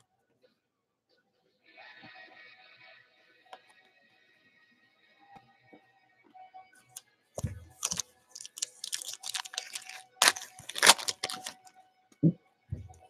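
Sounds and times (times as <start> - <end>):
foil wrapper tearing and crinkling: 7.8 - 11.6.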